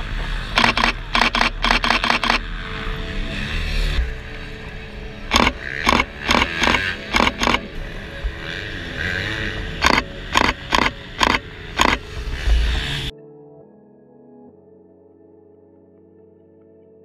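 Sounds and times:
motocross bikes running: 0:00.0 - 0:13.1
camera shutter clicks: 0:00.6 - 0:02.4, 0:05.3 - 0:07.7, 0:09.8 - 0:12.0.

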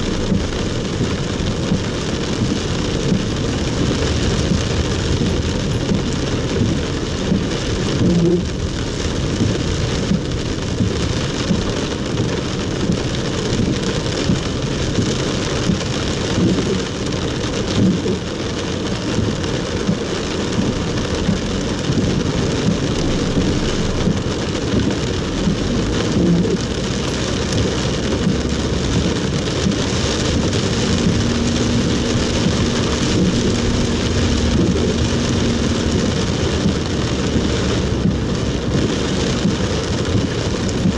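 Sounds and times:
heavy rain on car roof: 0:00.0 - 0:40.9.

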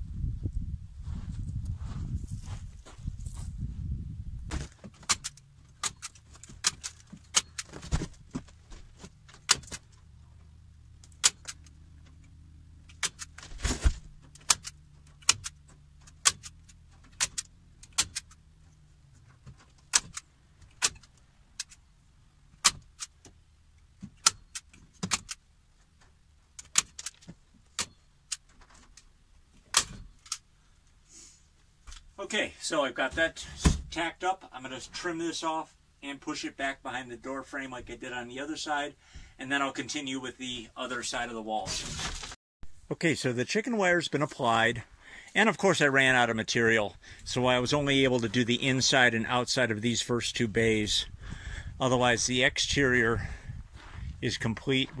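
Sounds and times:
staple gun snapping into wood: 0:16.2 - 0:18.3.

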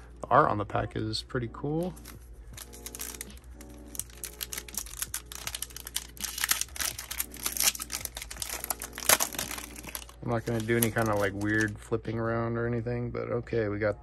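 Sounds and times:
foil wrapper crackling: 0:02.0 - 0:11.8
foil wrapper loud crack: 0:02.6 - 0:11.7.

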